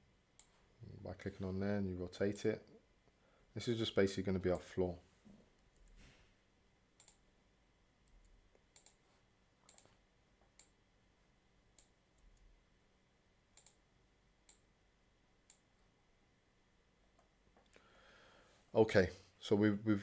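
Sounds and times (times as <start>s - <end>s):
computer mouse clicks: 7.0s - 7.2s, 8.0s - 9.0s, 9.6s - 10.8s, 13.6s - 13.8s, 14.5s - 14.7s, 15.5s - 15.7s.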